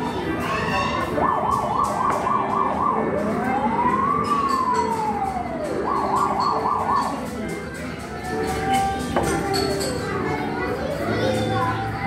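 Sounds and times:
fire truck siren: 1.1s - 7.4s.

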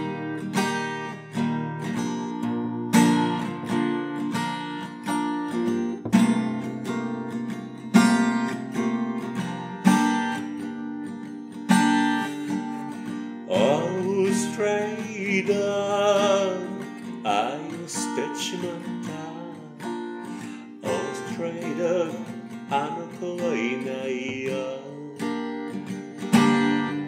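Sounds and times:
acoustic guitar strumming: 0.0s - 27.0s
person singing: 13.5s - 19.8s, 20.8s - 25.4s.

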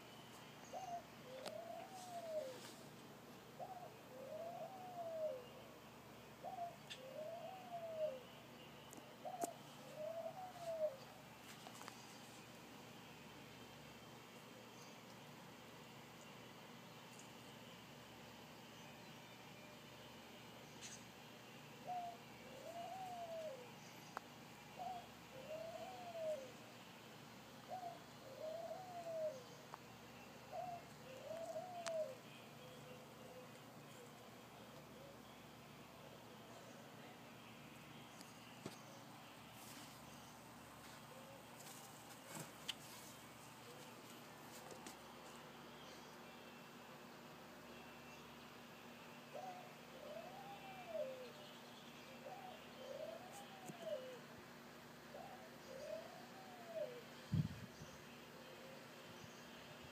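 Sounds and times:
dove cooing: 0.7s - 2.8s, 3.5s - 5.6s, 6.4s - 8.4s, 9.2s - 11.1s, 21.8s - 23.8s, 24.7s - 26.7s, 27.6s - 29.6s, 30.5s - 35.4s, 49.3s - 51.5s, 52.1s - 54.4s, 55.1s - 57.6s, 58.3s - 59.1s.

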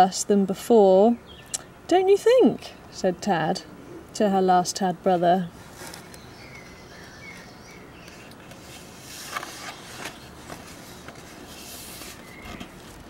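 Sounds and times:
book page turning: 5.7s - 6.2s, 8.1s - 13.0s
faint bird chirps: 6.0s - 8.3s, 12.1s - 12.8s.

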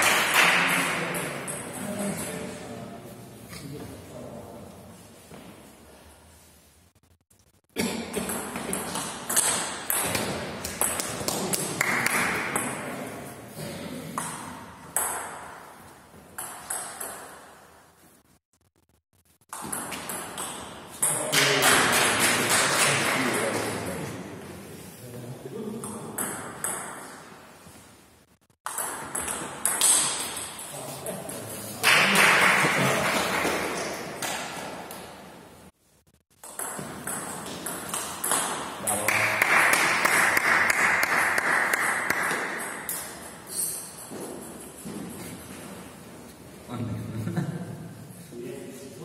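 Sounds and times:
table tennis ball hitting bats: 7.9s - 13.2s, 14.1s - 17.6s, 19.5s - 23.8s, 25.8s - 27.4s, 28.6s - 30.8s, 31.8s - 35.2s, 36.3s - 45.2s
ball bouncing on table: 8.2s - 12.8s, 36.4s - 38.7s.

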